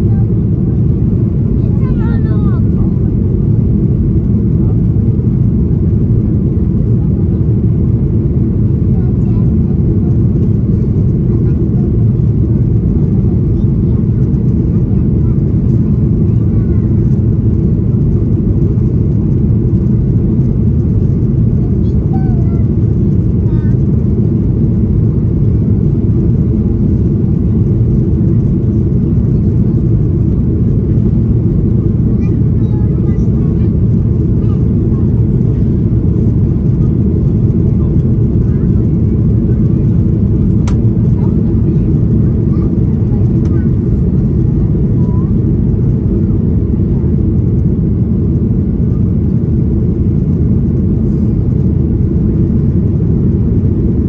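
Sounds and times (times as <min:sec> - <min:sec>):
airplane cabin engine roar: 0:00.0 - 0:54.0.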